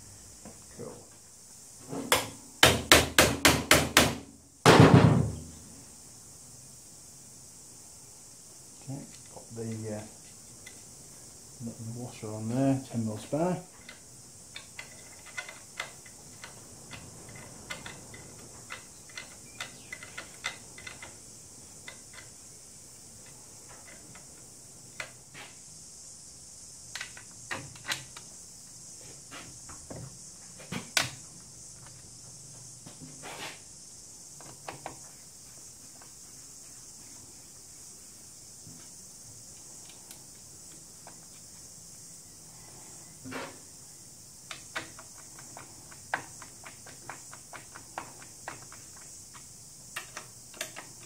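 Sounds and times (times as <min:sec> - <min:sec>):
steady high hiss: 0:00.0 - 0:51.0
metal clicks of hand tools: 0:13.8 - 0:21.2.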